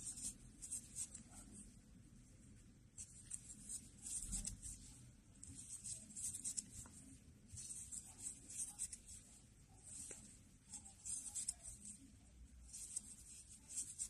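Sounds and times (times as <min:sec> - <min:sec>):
yarn rustling on crochet hook: 0:03.0 - 0:14.0.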